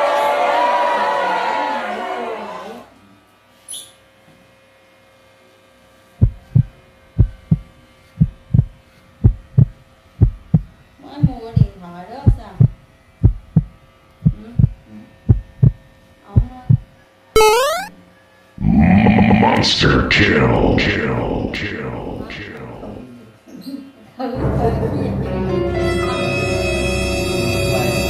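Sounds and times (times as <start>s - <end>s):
heartbeat thumps: 6.2s - 15.8s, 16.4s - 17.5s
brief voice-like sound: 18.6s - 23.2s.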